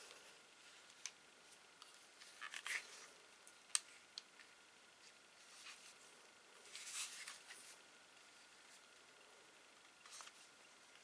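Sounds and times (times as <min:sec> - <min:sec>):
handling rustle: 0:05.0 - 0:07.8.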